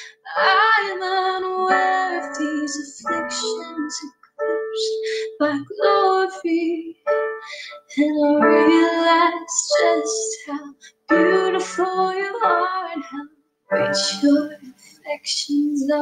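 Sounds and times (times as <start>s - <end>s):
keyboard accompaniment: 0.0s - 14.9s
person singing: 0.1s - 6.9s, 7.7s - 16.0s.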